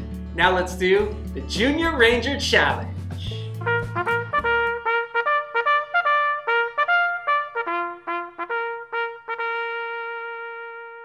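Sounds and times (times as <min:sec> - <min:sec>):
brass fanfare jingle: 0:03.5 - 0:11.0.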